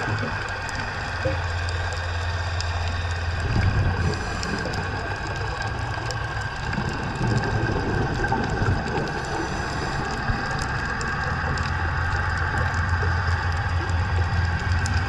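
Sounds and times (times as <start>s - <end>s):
faint clicks: 0.0s - 15.0s
low underwater hum: 0.0s - 15.0s
underwater hiss: 3.4s - 5.1s, 7.4s - 11.1s.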